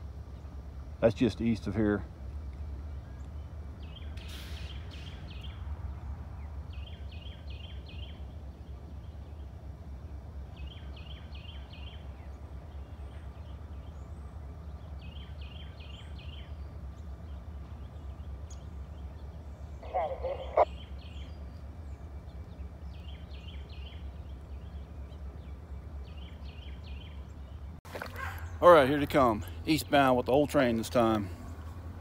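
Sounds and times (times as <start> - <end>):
songbird chirping: 0.0 - 32.0
brief hiss: 4.2 - 5.2
locomotives rumbling: 5.2 - 32.0.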